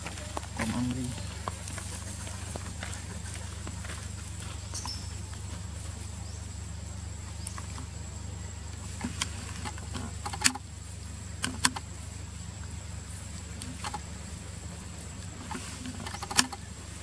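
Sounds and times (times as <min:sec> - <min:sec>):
leaves and twigs crackling: 0:00.0 - 0:11.4
steady low rumble: 0:00.0 - 0:17.0.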